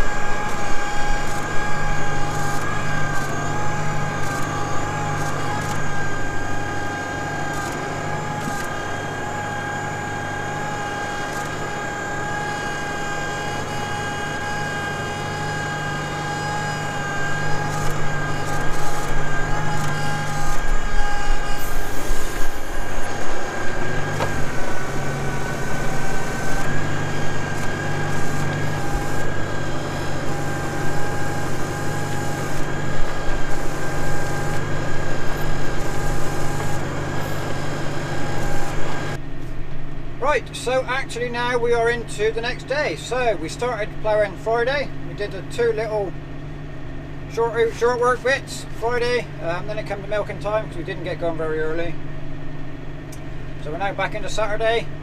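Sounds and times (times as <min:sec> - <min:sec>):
tractor engine under load: 0:00.0 - 0:41.2
high whine: 0:00.0 - 0:55.0.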